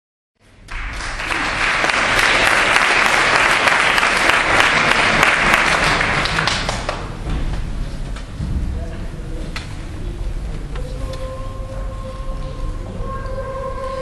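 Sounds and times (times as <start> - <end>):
audience applauding: 0.5 - 7.1.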